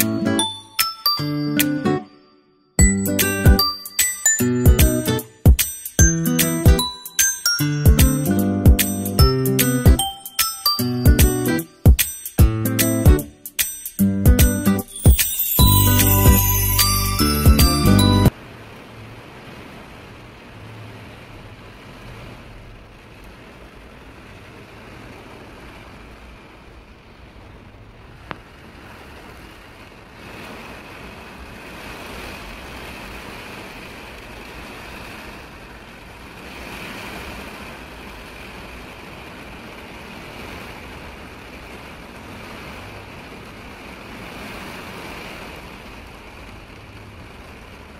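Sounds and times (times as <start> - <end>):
rain and wind hiss: 3.0 - 47.9.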